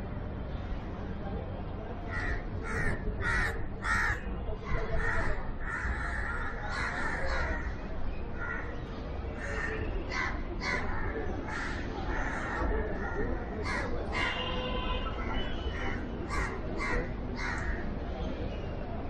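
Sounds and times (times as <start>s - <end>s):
crows cawing: 2.1s - 4.2s, 5.0s - 7.7s, 13.6s - 14.4s, 15.8s - 17.8s.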